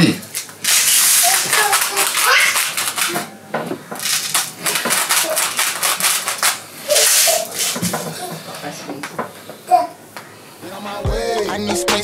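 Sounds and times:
salt grinder crunching: 0.3 - 3.2, 4.0 - 7.8.

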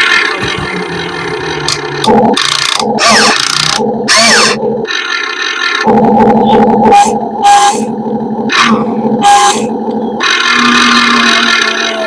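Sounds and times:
sliding pitch whines: 5.8 - 12.0.

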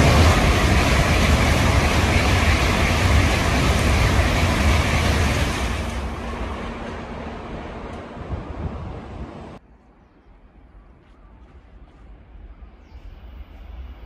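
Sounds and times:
high-speed train rushing past: 0.0 - 9.6, 13.0 - 14.0.

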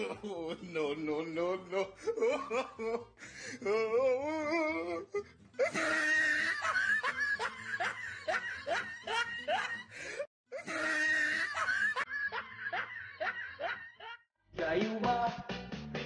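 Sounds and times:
person snickering laughter: 5.6 - 9.9, 10.6 - 14.2.

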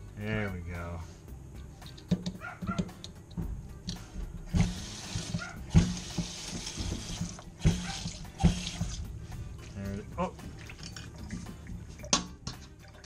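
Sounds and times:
water running into metal sink: 4.5 - 9.1.

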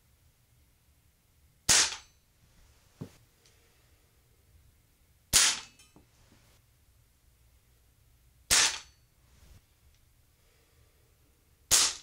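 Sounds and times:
air pistol shots: 1.7 - 2.1, 5.3 - 5.8, 8.5 - 8.9, 11.7 - 12.0.

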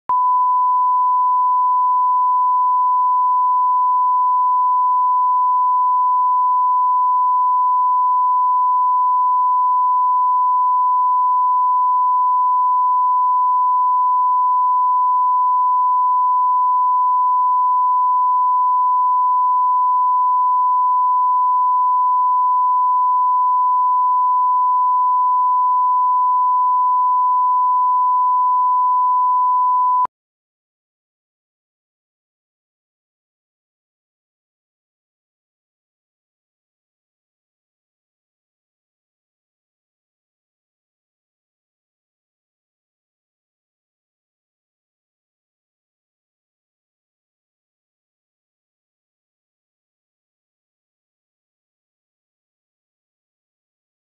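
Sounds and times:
steady test tone beep: 0.0 - 30.1.

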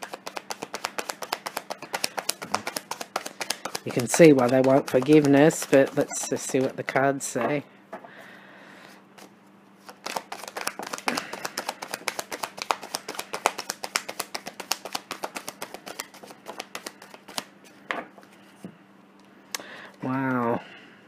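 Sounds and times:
cards being shuffled: 0.0 - 7.1, 9.2 - 18.5.

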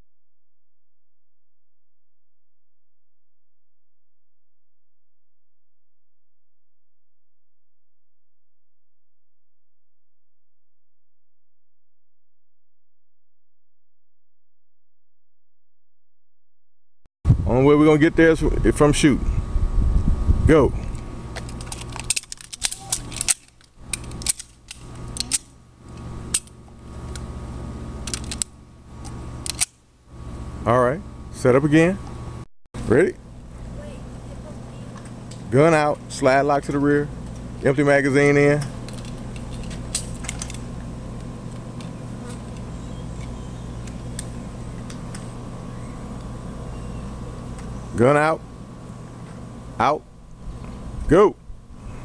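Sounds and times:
steady low hum: 17.3 - 52.0
pistols dry-fire clicking: 21.6 - 25.5, 29.4 - 29.8
handgun clicks: 29.4 - 29.7.

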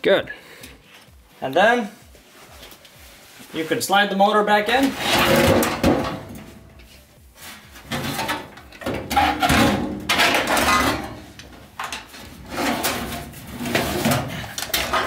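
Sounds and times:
sheet metal scraping and bumping: 4.8 - 6.6, 7.8 - 15.0.

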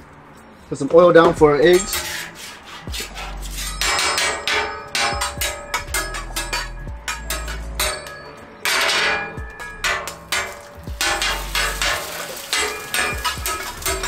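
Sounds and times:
metal spatula and fork clacking: 3.6 - 14.0
oil sizzling on hot griddle: 10.3 - 14.0.

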